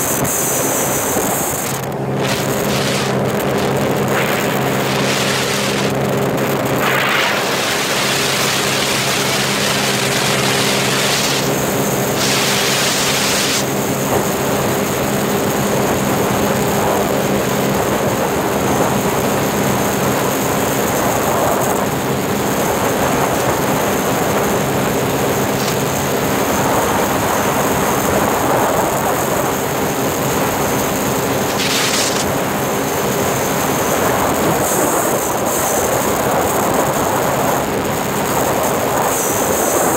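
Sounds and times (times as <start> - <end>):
jet ski engine running: 0.0 - 39.9
wind on microphone: 0.0 - 39.9
rushing water: 2.2 - 14.8.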